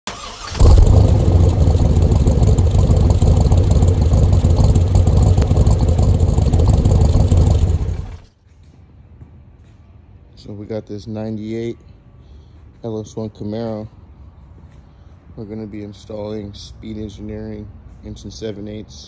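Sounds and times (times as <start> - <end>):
engine exhaust rumbling: 0.1 - 8.3.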